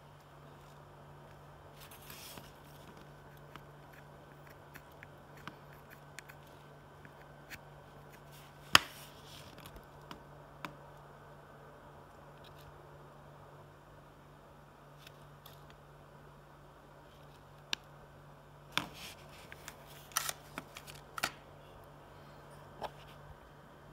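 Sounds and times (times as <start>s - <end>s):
steady low hum: 0.0s - 23.9s.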